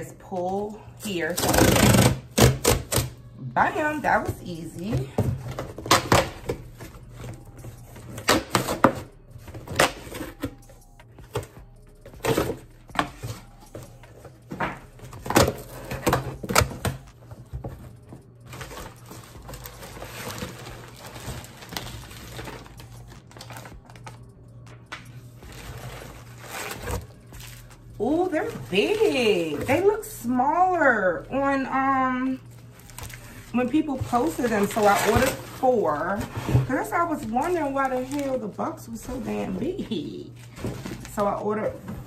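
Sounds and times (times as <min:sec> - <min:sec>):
plastic air-pillow packing crackling: 0:32.8 - 0:41.2.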